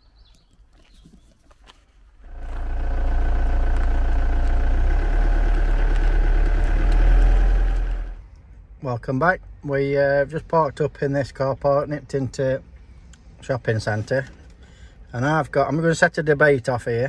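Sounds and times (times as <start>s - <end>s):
van engine pulling away: 2.2s - 8.2s.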